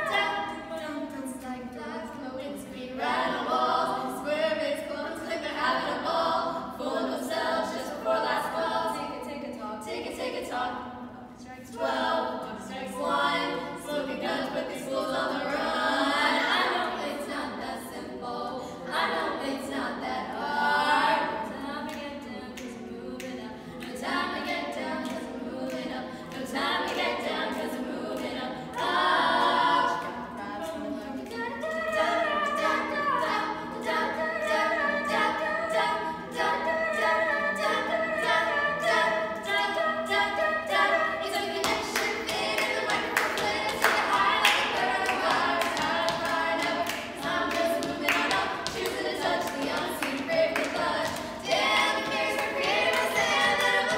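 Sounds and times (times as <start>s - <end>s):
women singing in harmony: 0.0s - 53.9s.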